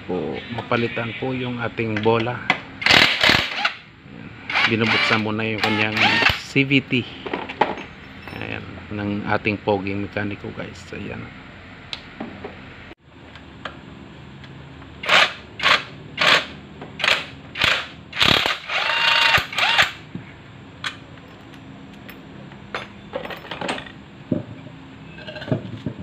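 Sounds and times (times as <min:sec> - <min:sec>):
ratchet wrench ratcheting: 0:15.0 - 0:20.0.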